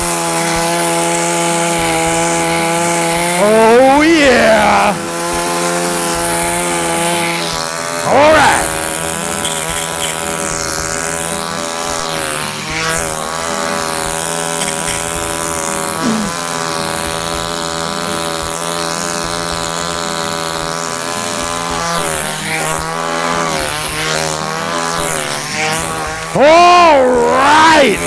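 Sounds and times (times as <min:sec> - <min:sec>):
chainsaw engine running: 0:00.0 - 0:28.0.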